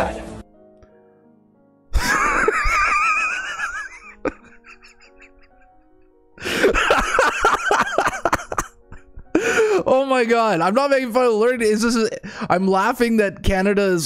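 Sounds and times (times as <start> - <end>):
faint background music: 0.0 - 14.0
man laughing hard: 2.0 - 9.9.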